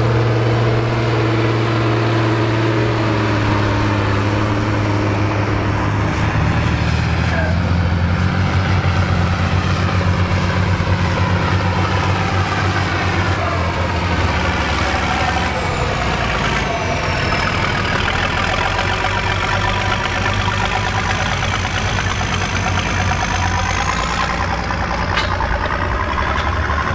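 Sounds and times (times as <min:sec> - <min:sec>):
tractor engine running: 0:00.0 - 0:26.9.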